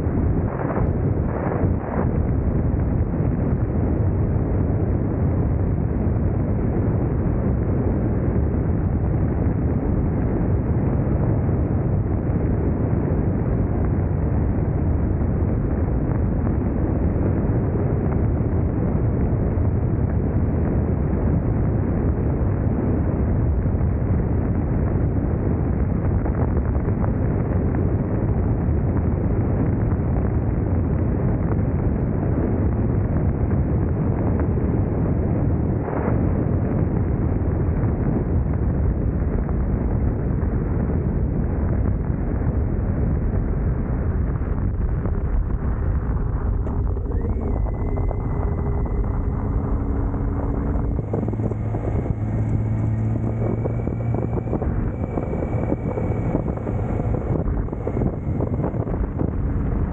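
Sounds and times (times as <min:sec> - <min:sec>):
wind rushing over microphone: 0:00.0 - 0:59.9
motorcycle engine running: 0:45.0 - 0:59.9.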